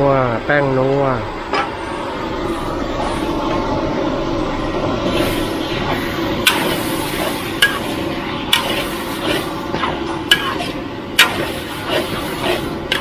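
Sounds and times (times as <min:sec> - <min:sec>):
burner noise: 0:00.3 - 0:13.0
food sizzling: 0:05.0 - 0:13.0
metal spatula clanging on wok: 0:10.3 - 0:11.6.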